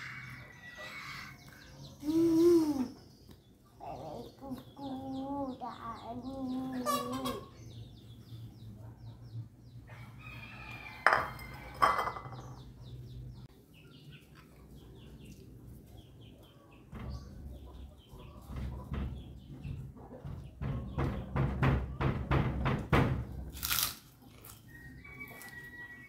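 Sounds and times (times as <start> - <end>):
sharp knocks: 18.4 - 23.4.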